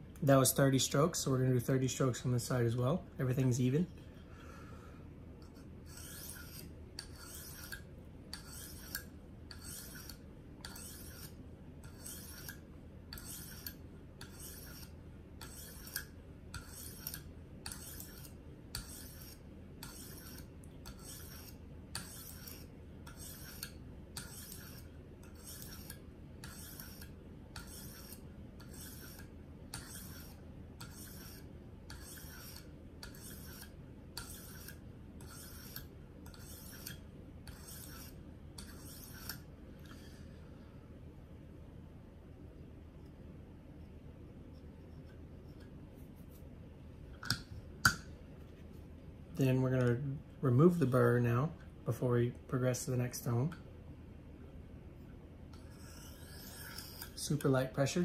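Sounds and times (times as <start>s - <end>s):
knife scraping on sharpening stone: 5.4s - 40.2s, 55.6s - 57.5s.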